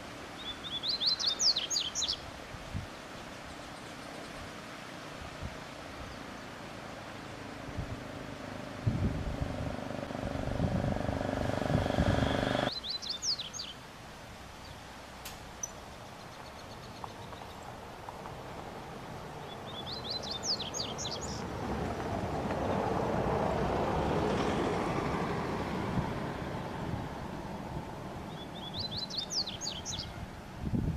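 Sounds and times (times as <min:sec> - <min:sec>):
bird twittering song: 0:00.4 - 0:02.2, 0:11.8 - 0:13.8, 0:15.6 - 0:17.7, 0:19.4 - 0:21.4, 0:28.3 - 0:30.2
low vehicle rumble: 0:07.1 - 0:12.7, 0:17.0 - 0:29.1.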